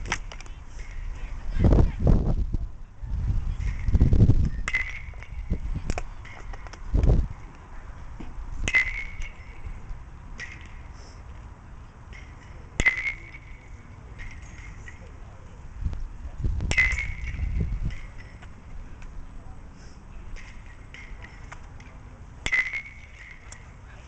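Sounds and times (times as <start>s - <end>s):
baseball bat hitting ball: 4.6s - 6.8s, 8.2s - 10.8s, 12.1s - 15.1s, 16.6s - 18.6s, 20.3s - 23.6s.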